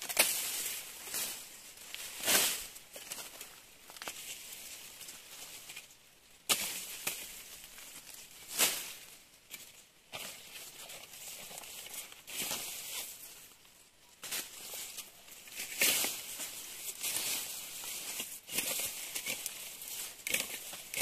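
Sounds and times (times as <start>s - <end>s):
machete chopping grass stalks: 0.0s - 1.4s, 2.2s - 2.7s, 6.5s - 7.4s, 8.5s - 9.0s, 15.6s - 21.0s
leaves rustling: 0.0s - 21.0s.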